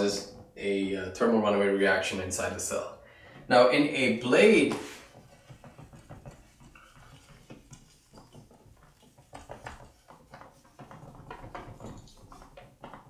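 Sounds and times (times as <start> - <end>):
eraser scrubbing a whiteboard: 4.8 - 12.8.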